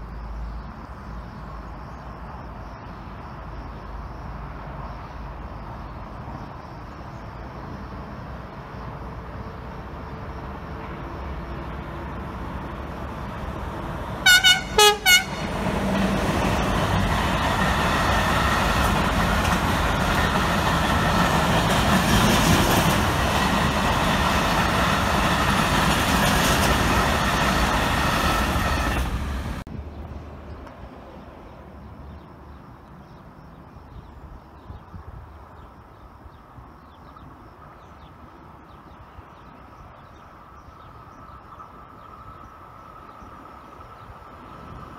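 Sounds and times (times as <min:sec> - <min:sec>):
freight train rumbling past: 0:03.9 - 0:32.6, 0:37.2 - 0:44.9
locomotive horn toots: 0:14.2 - 0:15.6.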